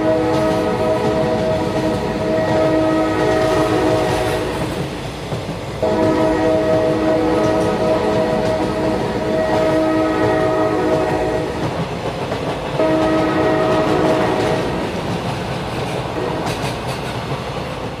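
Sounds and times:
train horn blasts: 0:00.0 - 0:04.7, 0:05.8 - 0:11.6, 0:12.8 - 0:14.9
train rumbling: 0:00.0 - 0:18.0.

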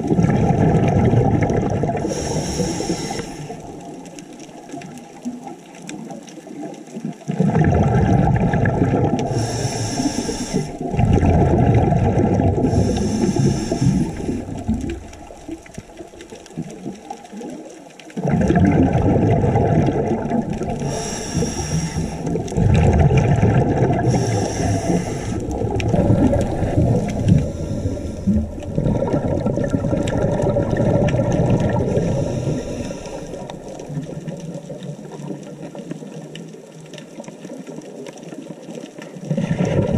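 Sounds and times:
bubbly regulator exhalations: 0:00.0 - 0:04.0, 0:07.3 - 0:16.9, 0:18.2 - 0:34.9, 0:39.3 - 0:39.9
hissing regulator breaths: 0:02.0 - 0:03.7, 0:09.3 - 0:10.8, 0:12.6 - 0:15.4, 0:20.6 - 0:22.5, 0:23.9 - 0:28.7, 0:31.8 - 0:33.9.

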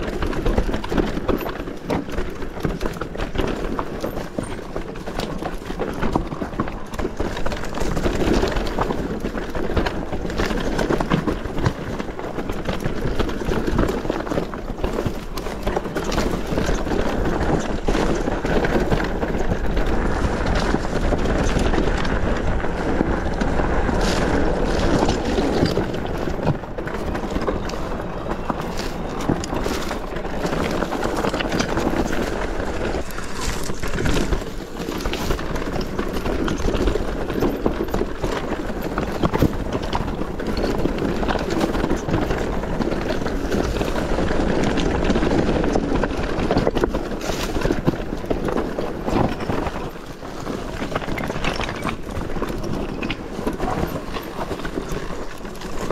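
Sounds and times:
bike rattling over bumps: 0:00.0 - 0:55.9
bike tyres rushing over stony trail: 0:00.0 - 0:55.9
wind buffeting microphone: 0:16.4 - 0:55.9.

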